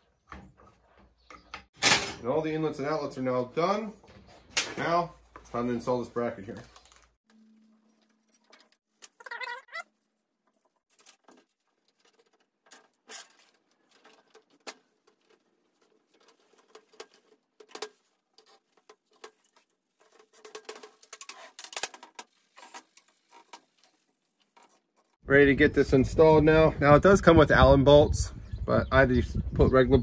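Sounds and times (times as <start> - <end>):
metal parts clicking and scraping: 10.5 - 25.2.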